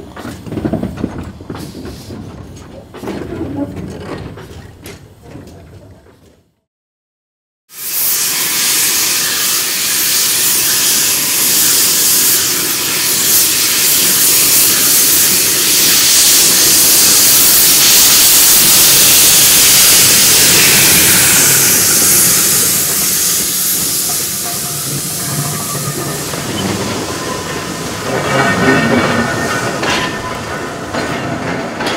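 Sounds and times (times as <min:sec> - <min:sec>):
steam locomotive hissing steam: 0:07.7 - 0:31.8.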